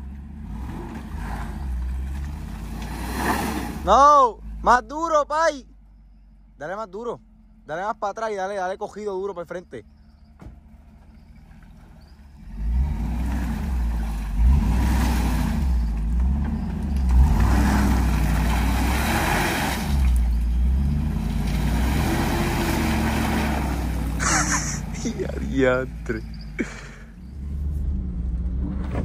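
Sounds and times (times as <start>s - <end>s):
tyres spinning in mud: 10.8s - 27.0s
engine revving hard: 12.4s - 15.8s, 17.0s - 25.4s.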